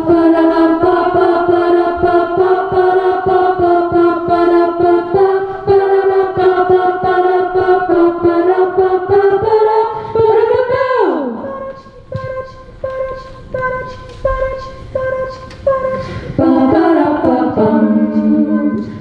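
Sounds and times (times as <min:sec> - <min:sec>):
women singing close harmony: 0:00.0 - 0:19.0.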